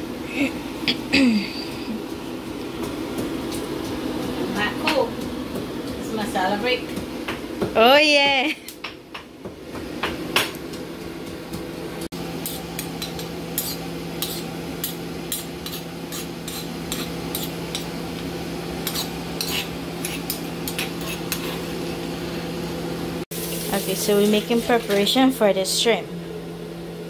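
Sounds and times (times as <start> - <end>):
pestle knocking and grinding in mortar: 2.7 - 7.8.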